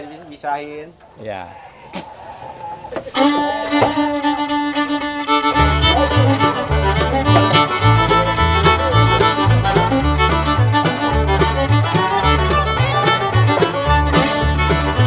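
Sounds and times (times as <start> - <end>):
instrumental tune: 3.2 - 15.0
low rhythmic bass line: 4.0 - 15.0.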